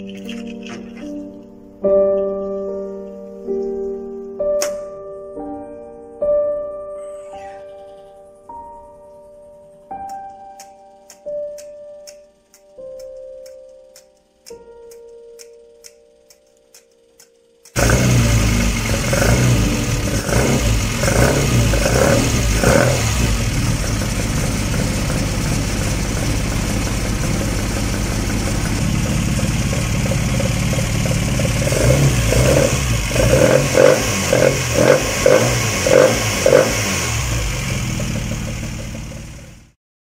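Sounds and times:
car engine throttle blips: 0:17.2 - 0:39.7.

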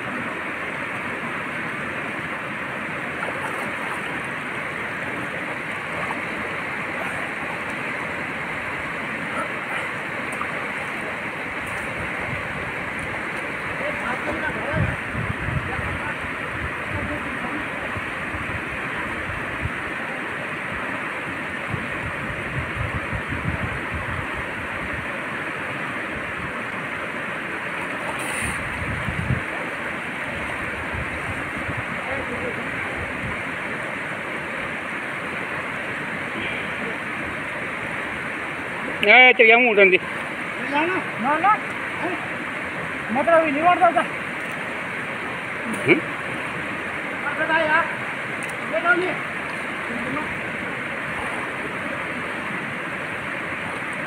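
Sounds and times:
swimmer splashing: 0:00.0 - 0:14.6, 0:27.2 - 0:33.0
stream rushing over rapids: 0:00.0 - 0:54.0.

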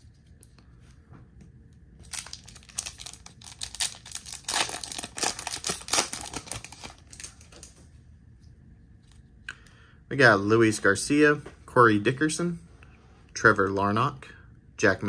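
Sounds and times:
plastic wrapper tearing and crinkling: 0:02.0 - 0:07.8.

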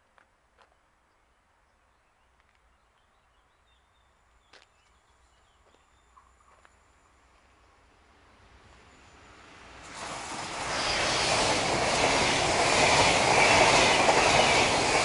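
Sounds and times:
approaching train rushing: 0:07.1 - 0:15.0.

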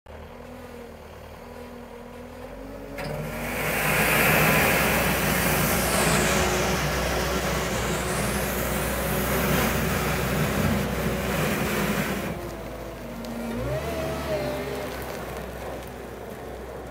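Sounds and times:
diesel engine running: 0:00.1 - 0:16.9
bucket scraping over snow: 0:03.2 - 0:12.6.

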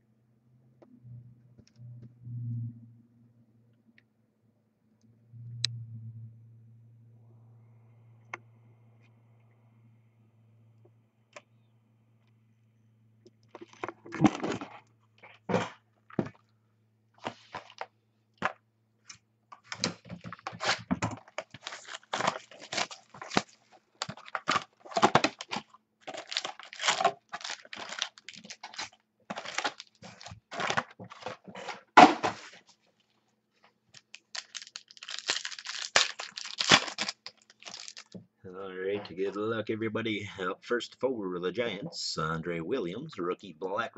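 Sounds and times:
foil wrapper tearing and crinkling: 0:19.7 - 0:31.4, 0:34.0 - 0:38.2.

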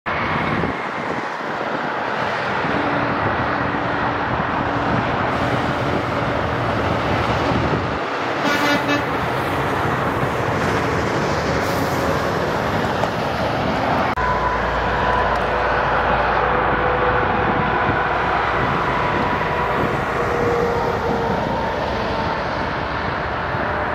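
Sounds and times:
highway traffic noise: 0:00.0 - 0:23.9
truck engine and tyres humming: 0:00.1 - 0:23.9
short high-pitched horn toot: 0:08.4 - 0:09.1.

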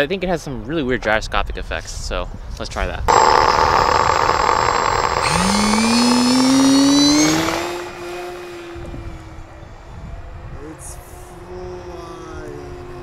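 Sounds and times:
electric motors whining: 0:03.1 - 0:09.2.

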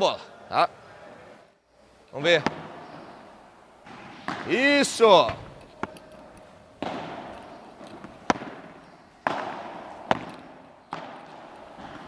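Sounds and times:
ball knocking on rackets: 0:03.8 - 0:04.6, 0:05.2 - 0:12.0.

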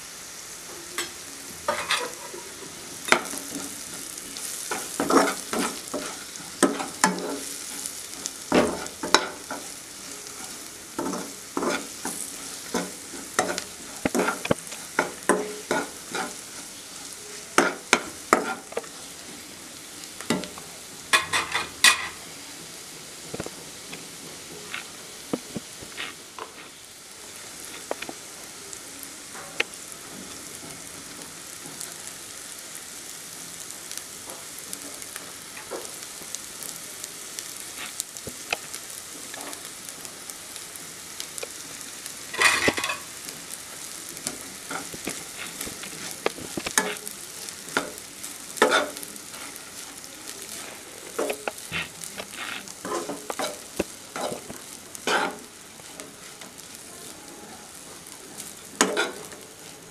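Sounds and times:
onions sizzling in oil: 0:00.0 - 0:59.9
spatula scraping and knocking pan: 0:01.7 - 0:19.0, 0:42.3 - 0:43.1, 0:48.6 - 0:49.6, 0:50.6 - 0:55.4.

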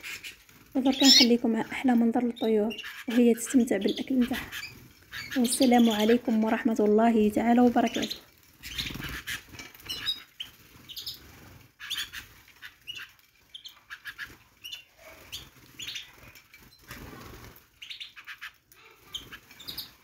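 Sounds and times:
bird wings fluttering: 0:04.1 - 0:20.0.

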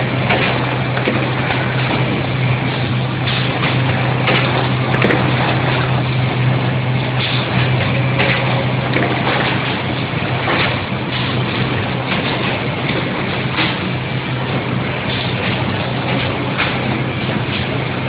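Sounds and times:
machine clacks: 0:00.0 - 0:18.0
machine hum and whir: 0:00.0 - 0:18.0.

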